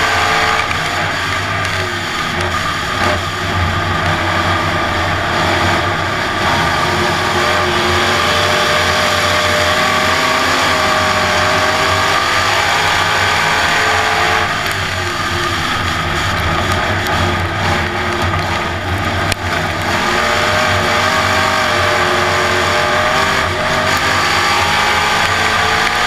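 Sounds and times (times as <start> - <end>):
race car engine running hard: 0.0 - 26.0.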